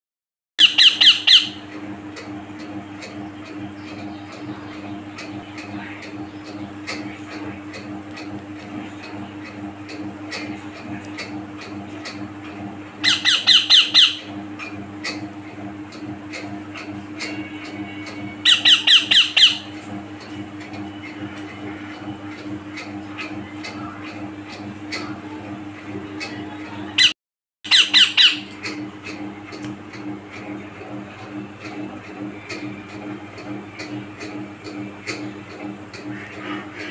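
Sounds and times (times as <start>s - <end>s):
parakeet squawk: 0.6s - 1.6s, 13.0s - 14.3s, 18.4s - 19.7s, 27.7s - 28.5s
steady low hum: 0.6s - 36.9s.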